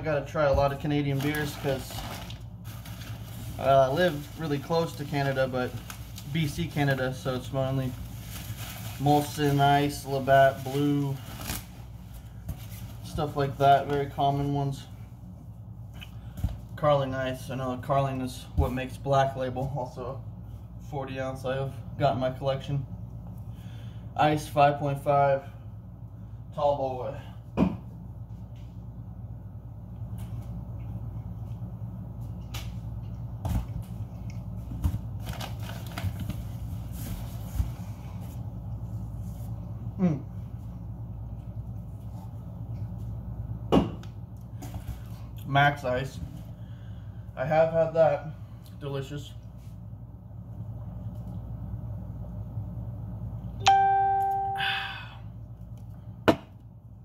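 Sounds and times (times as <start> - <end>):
low hum: 49.4 - 57.0
ringing chime: 53.6 - 55.0.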